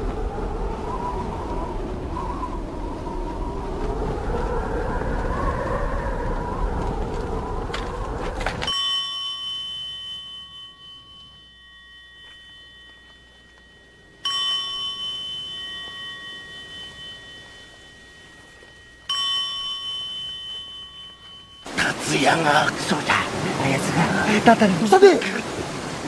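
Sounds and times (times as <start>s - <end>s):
small metal bell ringing: 8.7s - 21.8s.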